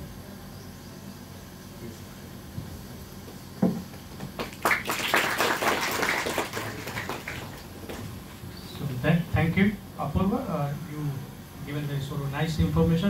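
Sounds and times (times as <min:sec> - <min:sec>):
thump: 0:03.6 - 0:03.9
audience clapping: 0:04.2 - 0:08.1.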